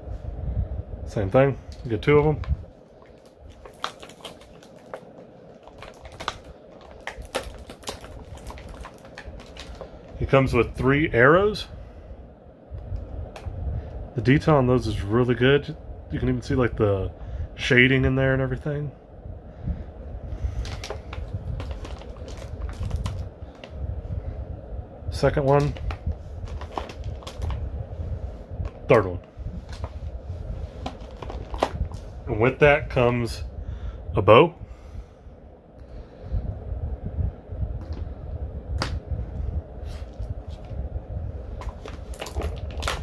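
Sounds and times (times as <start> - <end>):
plastic packaging clicks: 3.0 - 10.2, 20.6 - 23.7, 25.4 - 27.6, 30.9 - 32.0, 41.6 - 43.0.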